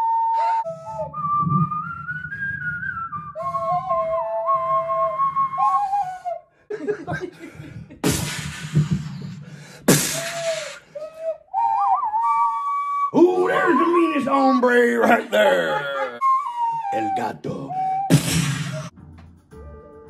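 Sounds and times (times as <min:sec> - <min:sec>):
ocarina melody: 0:00.0 - 0:06.4, 0:11.0 - 0:20.0.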